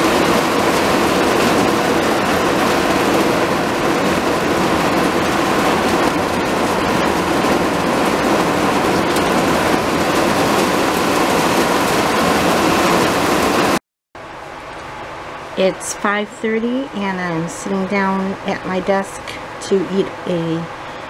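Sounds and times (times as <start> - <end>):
heavy rain on concrete and plastic: 0.0 - 13.8.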